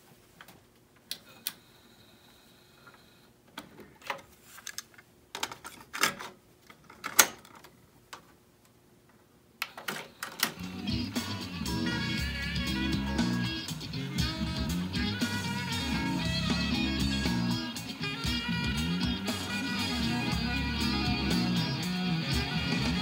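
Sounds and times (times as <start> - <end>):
music from cassette tape: 10.4 - 23.0.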